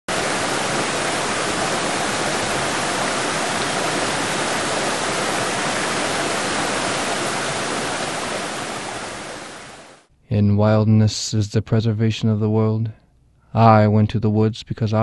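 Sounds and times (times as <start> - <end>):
water cascading over rocks: 0.1 - 10.0.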